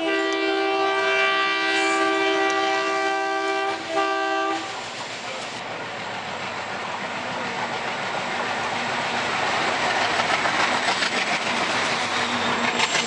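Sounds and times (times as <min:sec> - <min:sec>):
locomotive horn blasts: 0:00.0 - 0:04.8
train rumbling on track: 0:00.0 - 0:13.0.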